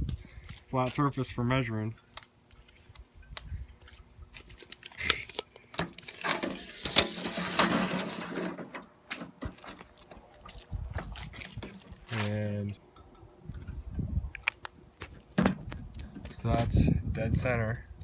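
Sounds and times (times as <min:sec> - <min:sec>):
tape measure rattling whirr: 0:06.0 - 0:08.8.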